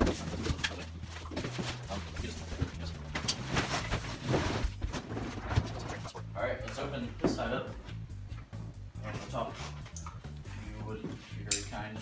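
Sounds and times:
cardboard rustling and scraping: 0:00.0 - 0:06.2
background music with bass line: 0:00.0 - 0:12.0.

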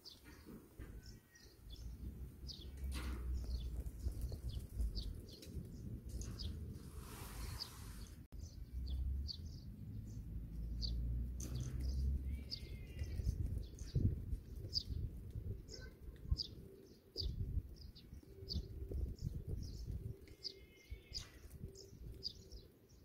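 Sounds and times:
small birds chirping: 0:00.0 - 0:23.0
brief rustling hiss: 0:06.8 - 0:08.3.

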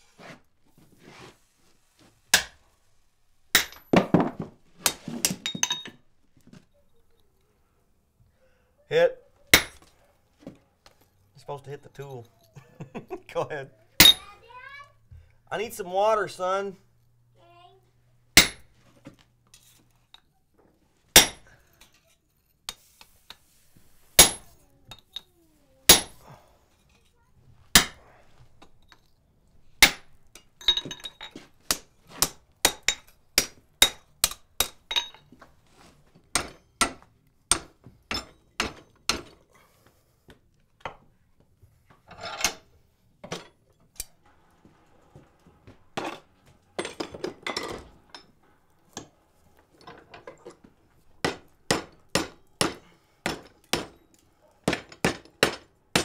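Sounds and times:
hammer striking iron on anvil: 0:02.3 - 0:02.6, 0:03.5 - 0:04.0, 0:09.6 - 0:09.8, 0:14.0 - 0:14.2, 0:18.4 - 0:18.7, 0:21.2 - 0:21.5, 0:24.2 - 0:24.6, 0:25.9 - 0:26.2, 0:27.8 - 0:28.0, 0:29.8 - 0:35.2, 0:36.3 - 0:39.3, 0:51.2 - 0:54.0, 0:54.6 - 0:56.0.

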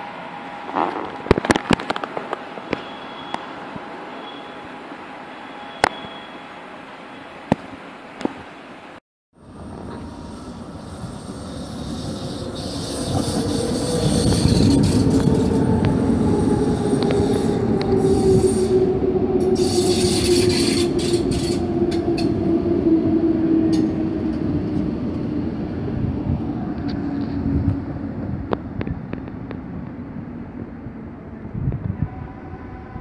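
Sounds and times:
high squeals and hisses: 0:09.4 - 0:22.4
train wheels rumbling: 0:09.4 - 0:33.0.

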